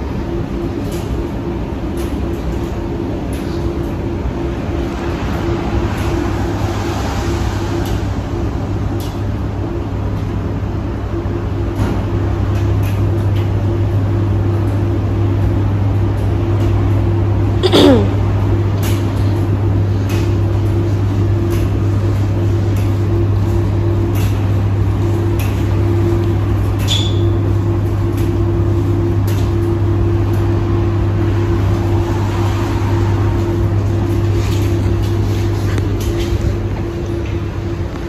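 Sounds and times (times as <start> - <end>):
tumble dryer humming: 0.0 - 38.0
light ticks of tumbling laundry: 0.1 - 17.6, 18.3 - 38.0.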